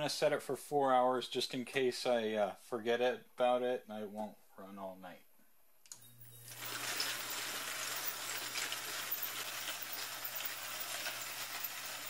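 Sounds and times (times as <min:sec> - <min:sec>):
tumbler motor hum: 0:06.0 - 0:12.0
metal pieces rattling in water: 0:06.4 - 0:12.0.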